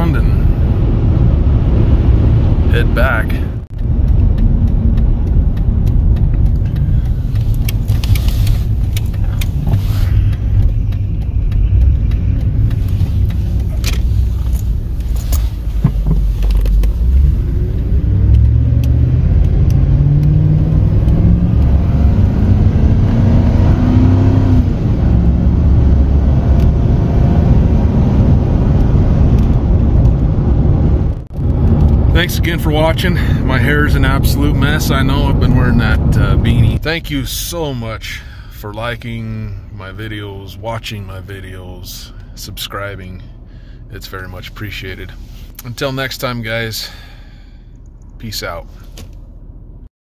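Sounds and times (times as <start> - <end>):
truck engine driving: 0.0 - 49.9
wind rumbling on microphone: 3.5 - 36.8.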